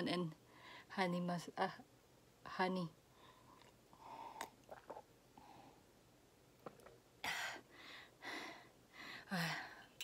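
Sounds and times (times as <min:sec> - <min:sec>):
sipping and swallowing: 0:04.4 - 0:05.1, 0:06.6 - 0:07.0.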